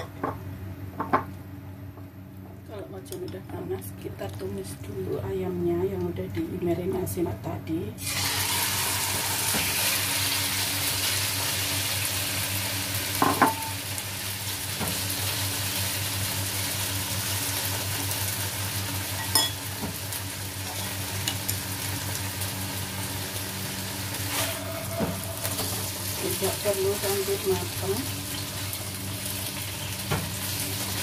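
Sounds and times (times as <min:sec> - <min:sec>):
chicken sizzling in hot oil: 0:08.0 - 0:31.0.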